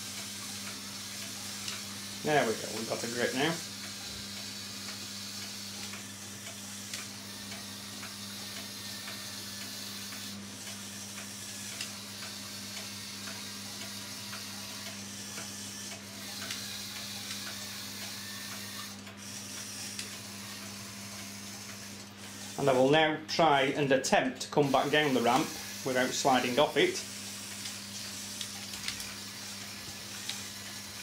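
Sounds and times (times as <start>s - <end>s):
toy motor and gears whirring: 0.0s - 23.7s, 24.4s - 31.0s.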